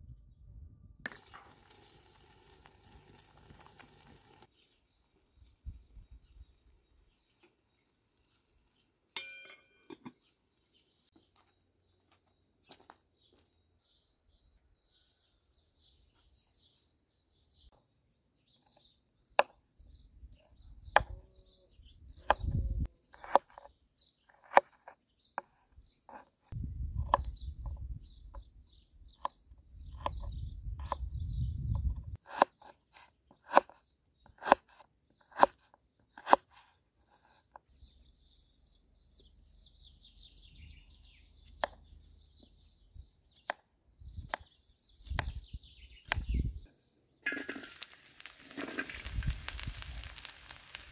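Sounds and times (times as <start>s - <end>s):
small birds chirping: 1.1s - 50.9s
ringing clink: 9.2s - 10.0s
knife chopping on wooden board: 23.2s - 23.7s, 32.2s - 32.7s.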